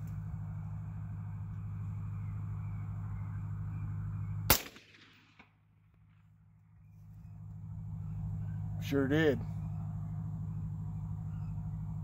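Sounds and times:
steady low hum: 0:00.0 - 0:12.0
suppressed rifle shot: 0:04.5 - 0:05.6.

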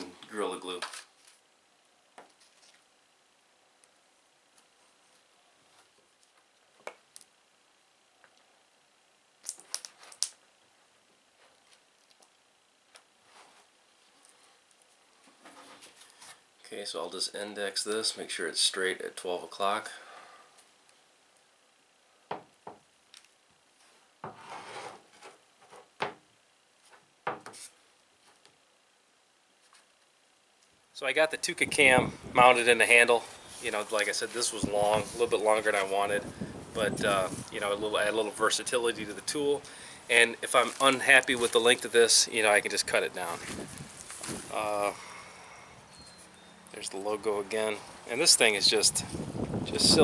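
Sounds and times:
crisp ticks and crinkly rustles: 0:11.4 - 0:16.4, 0:40.4 - 0:42.0, 0:42.7 - 0:44.6.

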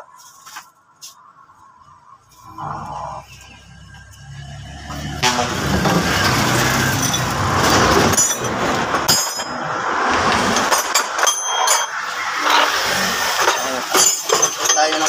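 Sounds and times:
heavy vehicle engine running: 0:02.4 - 0:15.0
sharp metallic clinks: 0:06.2 - 0:15.0.

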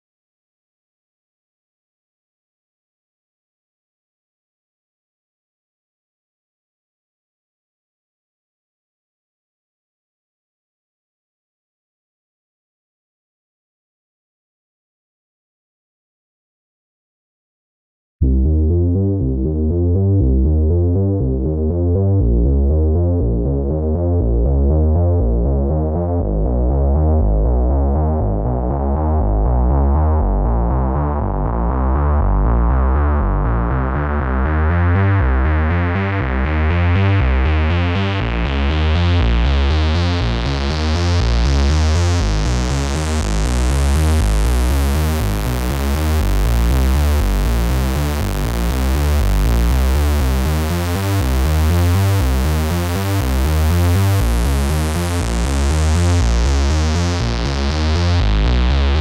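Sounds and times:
synthesizer bass sequence: 0:18.2 - 0:59.0.

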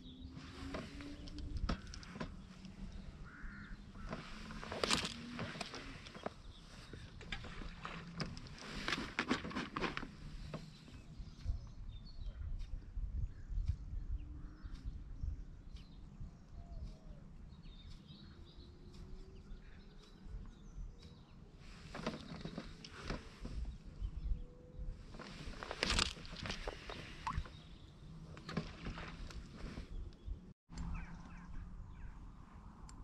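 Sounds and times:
rustles and clicks: 0:00.0 - 0:11.8, 0:21.1 - 0:30.9.

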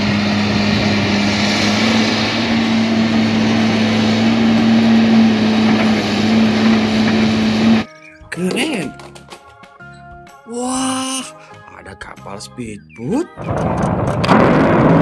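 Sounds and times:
excavator diesel engine humming: 0:00.0 - 0:07.9.

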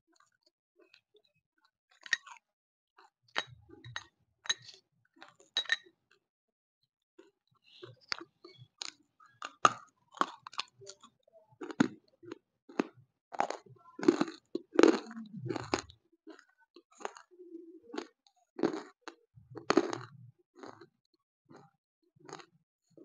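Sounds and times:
crunchy chewing: 0:07.2 - 0:17.3, 0:17.9 - 0:20.9, 0:21.5 - 0:22.5.

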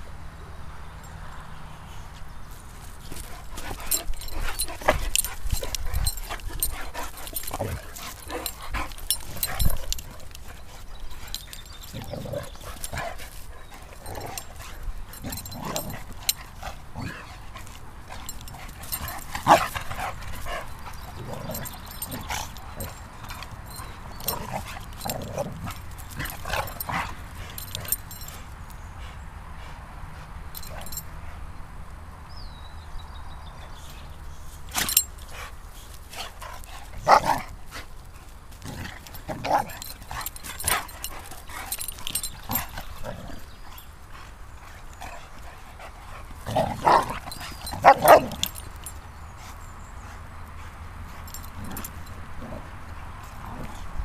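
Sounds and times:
bumps of dogs playing: 0:02.5 - 0:28.6, 0:34.2 - 0:49.6, 0:50.4 - 0:54.0.

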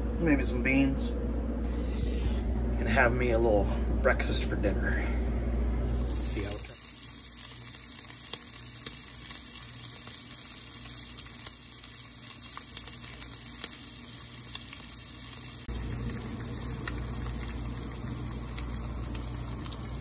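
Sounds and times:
bacon sizzling in a frying pan: 0:05.8 - 0:20.0
eggs frying in a pan: 0:05.9 - 0:20.0.

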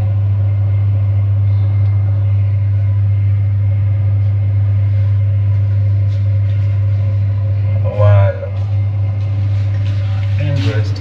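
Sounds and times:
loud low hum: 0:00.0 - 0:11.0.

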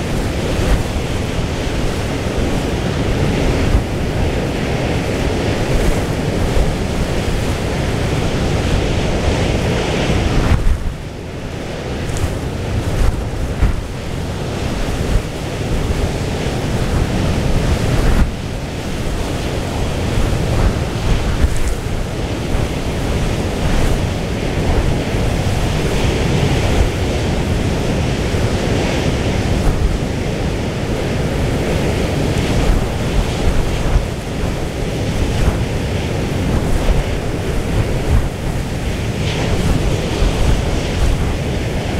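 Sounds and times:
rough sea: 0:00.0 - 0:41.9
wind blowing across microphone: 0:00.0 - 0:41.9.

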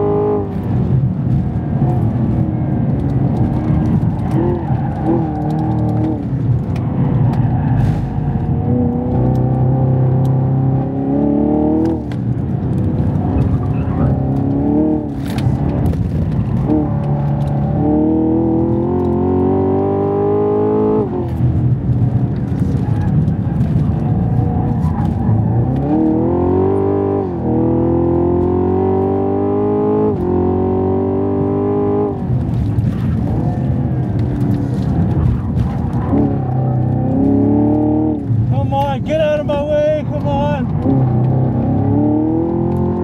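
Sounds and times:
car engine revving under full throttle: 0:00.0 - 0:43.0.

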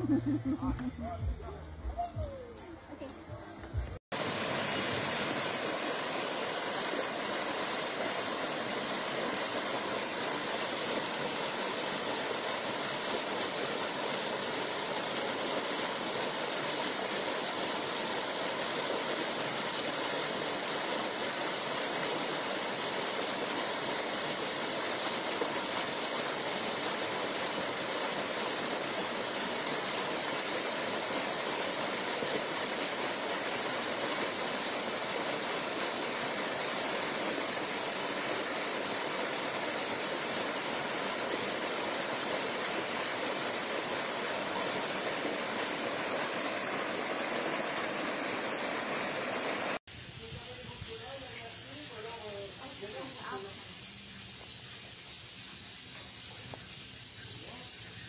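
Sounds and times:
waterfall rushing over rocks: 0:03.7 - 0:49.8.

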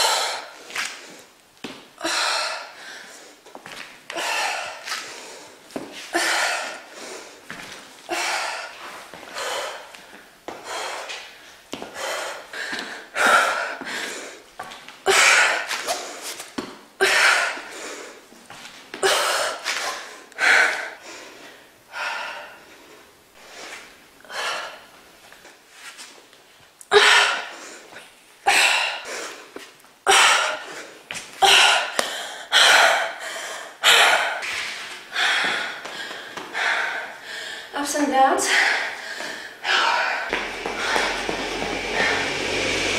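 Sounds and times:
woman breathing hard: 0:00.0 - 0:01.3, 0:02.0 - 0:18.3, 0:19.0 - 0:25.6, 0:26.9 - 0:37.8, 0:38.4 - 0:42.9.

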